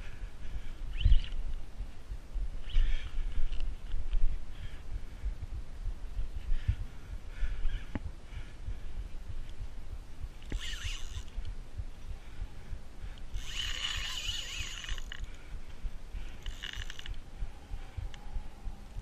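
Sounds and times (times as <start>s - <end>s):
wind on camera: 0.0s - 19.0s
fishing reel whirring: 10.4s - 11.4s, 13.3s - 15.3s, 16.3s - 17.2s.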